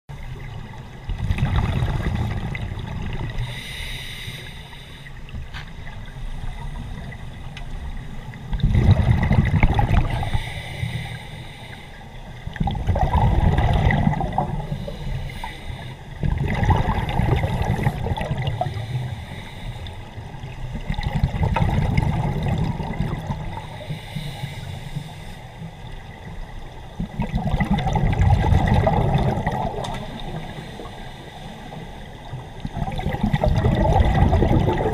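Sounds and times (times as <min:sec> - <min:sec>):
gurgling exhaled bubbles underwater: 0:00.1 - 0:03.6, 0:05.4 - 0:10.4, 0:12.4 - 0:15.2, 0:16.1 - 0:19.2, 0:20.2 - 0:23.9, 0:25.9 - 0:30.8, 0:31.7 - 0:34.9.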